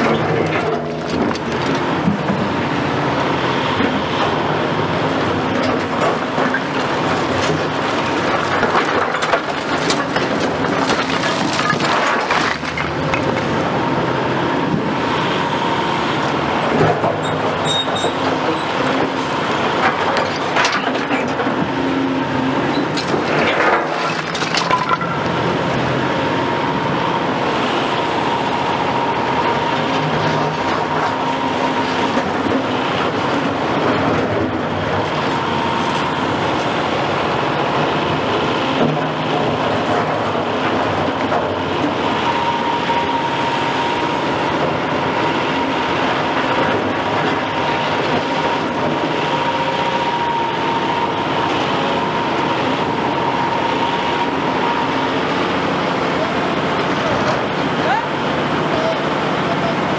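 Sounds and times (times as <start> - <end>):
excavator diesel engine under load: 0.0 - 59.9
concrete chunks clattering: 5.7 - 13.5, 22.8 - 25.4
bucket scraping concrete rubble: 8.6 - 13.4, 23.0 - 25.3.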